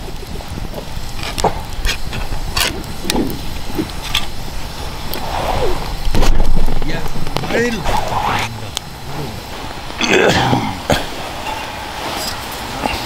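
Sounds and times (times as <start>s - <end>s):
wood fire crackling: 0.0s - 13.0s
faint voices: 6.7s - 12.0s.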